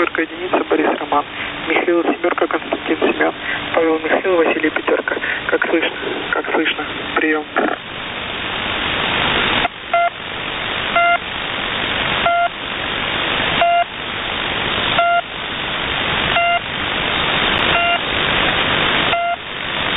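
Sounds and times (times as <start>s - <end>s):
shortwave receiver hiss: 0.0s - 19.9s
short beeps: 11.0s - 11.2s, 12.2s - 12.5s, 13.6s - 13.9s, 15.0s - 15.3s, 16.4s - 16.6s, 17.7s - 18.0s, 19.1s - 19.4s.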